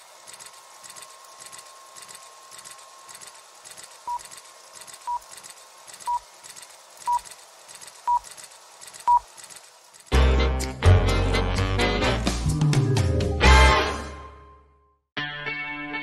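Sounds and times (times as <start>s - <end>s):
faint rhythmic projector clatter: 0.0s - 10.3s.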